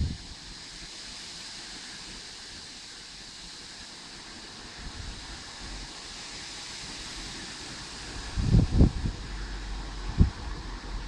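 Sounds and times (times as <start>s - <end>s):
gusty wind: 0.0s - 0.6s, 6.8s - 11.0s
wind rumble on microphone: 0.0s - 0.6s, 6.8s - 11.0s.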